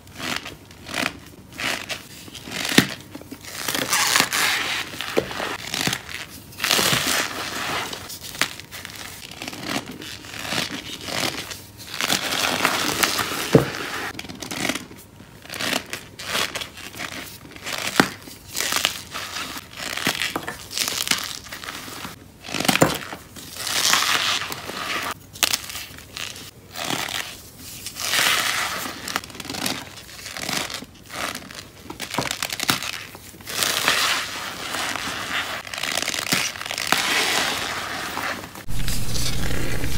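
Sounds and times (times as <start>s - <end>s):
chalk crunching in hands: 33.5s - 39.9s.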